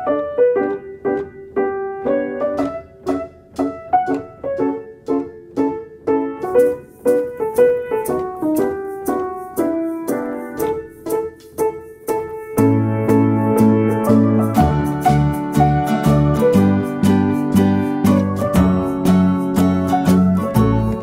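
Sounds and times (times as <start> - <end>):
bouncy piano melody: 0.0 - 21.0.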